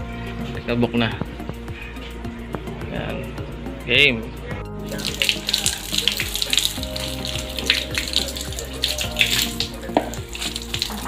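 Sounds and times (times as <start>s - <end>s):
water splashing on window blind: 4.9s - 11.0s.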